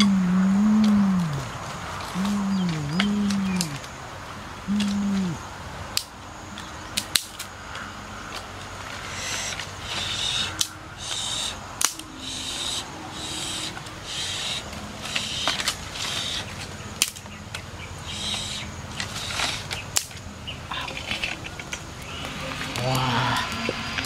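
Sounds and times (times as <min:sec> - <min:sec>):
repeating animal call: 0:00.0 - 0:03.9, 0:04.7 - 0:05.4, 0:09.0 - 0:16.5, 0:18.0 - 0:19.7
dry twigs snapping: 0:00.8 - 0:03.9, 0:04.7 - 0:11.2, 0:11.8 - 0:12.1, 0:14.7 - 0:22.1.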